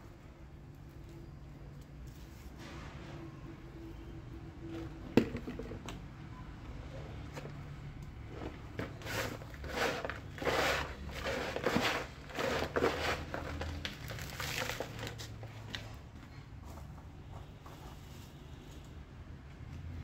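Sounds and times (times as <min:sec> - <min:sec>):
hand scraping soil from flowerpot: 0:08.2 - 0:15.9.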